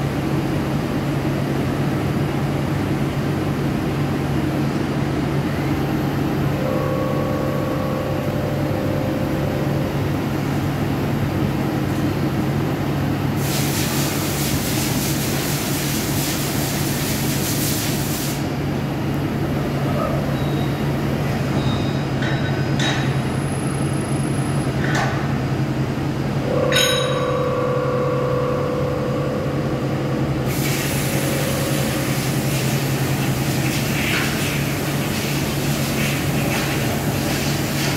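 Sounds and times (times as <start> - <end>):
lathe machine hum: 1.7 - 13.4, 25.5 - 37.9.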